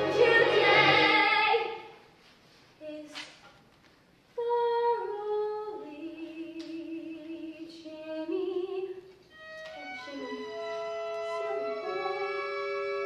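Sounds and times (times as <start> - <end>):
woman singing: 4.4 - 9.1.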